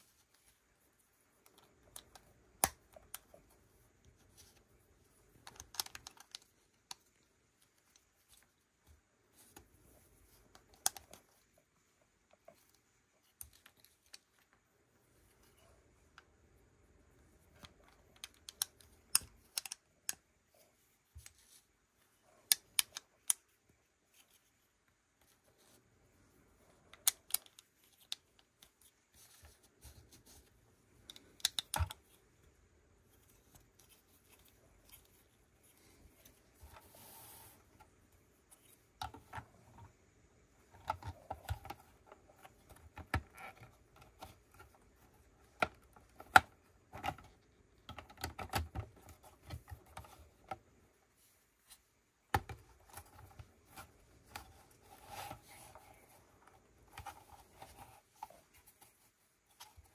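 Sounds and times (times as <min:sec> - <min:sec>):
plastic toy bricks clicking: 0:17.6 - 0:20.2, 0:22.4 - 0:23.4, 0:31.1 - 0:32.0.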